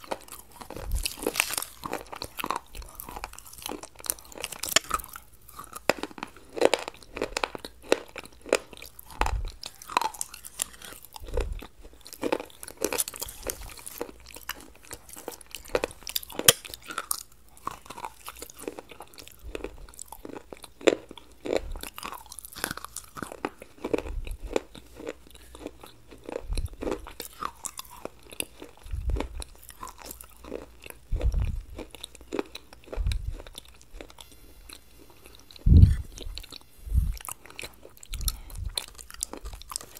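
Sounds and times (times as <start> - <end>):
chewing crisp food: 0.0 - 39.9
dull low thumps: 28.8 - 29.4, 31.1 - 31.8, 32.9 - 33.5, 35.6 - 37.2.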